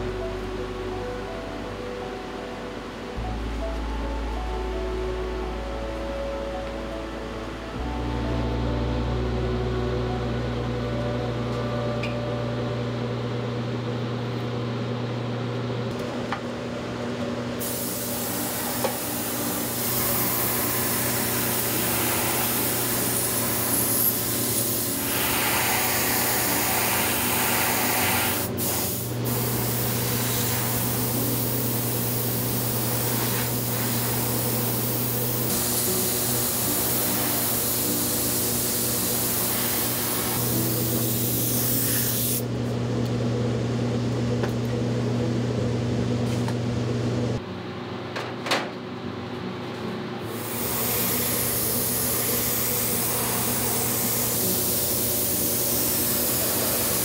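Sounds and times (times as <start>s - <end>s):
low hum of shop machinery: 0.0s - 57.0s
airbrush spraying hiss: 17.6s - 42.5s, 50.3s - 57.0s.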